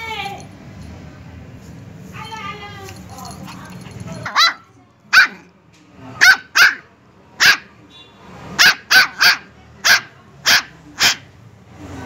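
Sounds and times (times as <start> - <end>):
puppy yapping: 4.2 - 5.4, 6.2 - 6.8, 7.4 - 7.7, 8.6 - 11.3.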